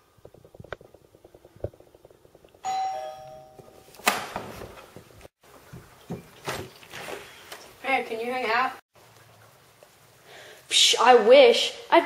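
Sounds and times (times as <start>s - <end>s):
two-tone doorbell chime: 2.6s - 3.9s.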